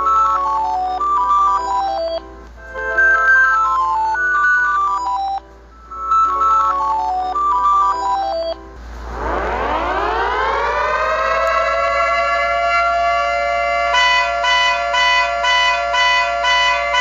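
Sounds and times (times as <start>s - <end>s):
short electronic melody: 0.0s - 17.0s
siren wailing: 7.9s - 17.0s
car horn honking in pulses: 12.4s - 17.0s.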